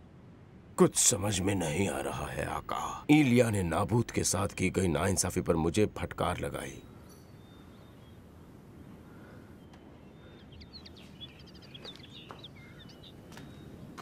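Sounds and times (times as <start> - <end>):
small birds chirping: 1.1 - 14.0.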